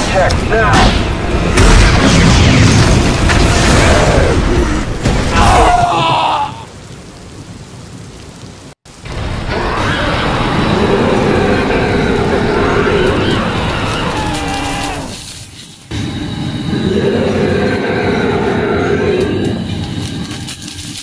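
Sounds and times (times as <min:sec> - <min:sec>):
film soundtrack music: 0:00.0 - 0:05.4.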